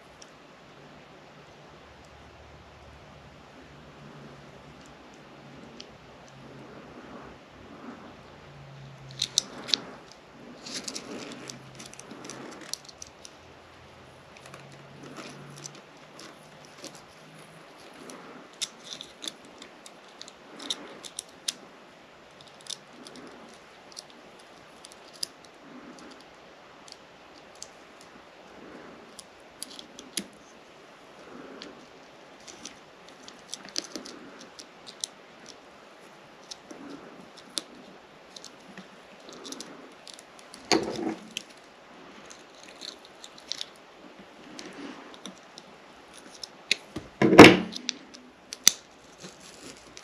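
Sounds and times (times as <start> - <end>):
small clicks of lacing dial: 22.3 - 28.3, 29.0 - 30.6, 31.2 - 41.6.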